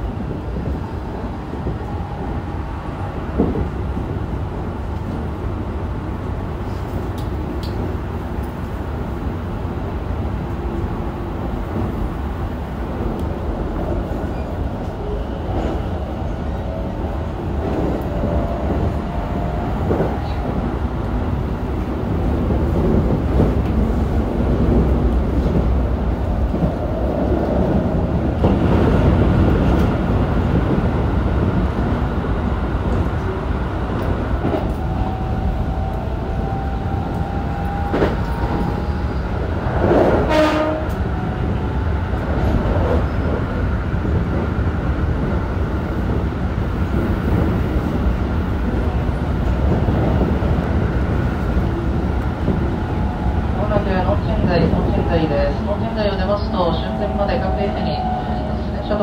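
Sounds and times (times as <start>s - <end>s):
train wheels rumbling on rail: 0.0s - 59.0s
train horn blast: 40.2s - 41.0s.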